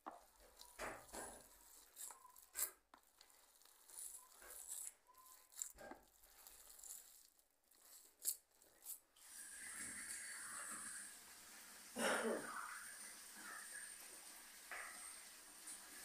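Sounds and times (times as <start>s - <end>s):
hand kneading wet meat mixture: 0.0s - 10.6s.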